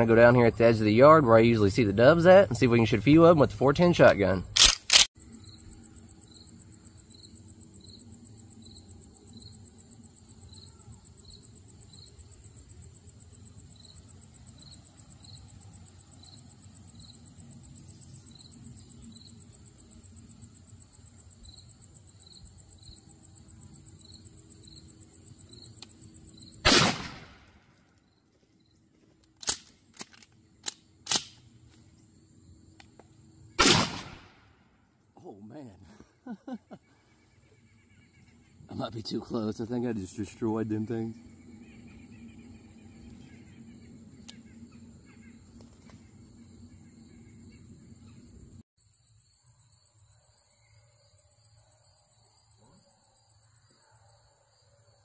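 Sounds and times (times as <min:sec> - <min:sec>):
insects trilling: 0:00.0 - 0:55.0
shotgun firing: 0:26.6 - 0:27.6, 0:33.6 - 0:34.5.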